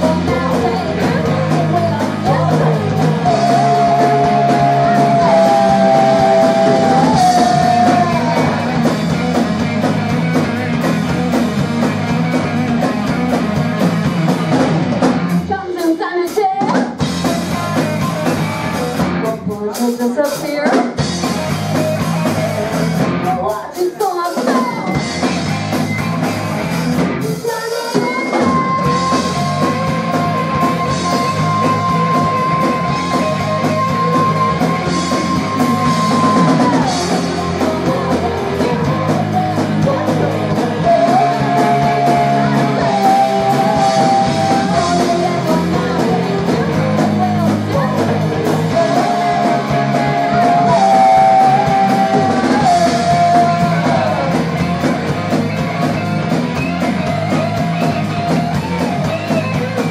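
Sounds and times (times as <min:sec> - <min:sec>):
person singing: 0:00.0 - 0:09.4, 0:15.4 - 0:21.0, 0:22.1 - 0:25.2, 0:27.2 - 0:55.0
live rock band playing: 0:00.0 - 0:59.9.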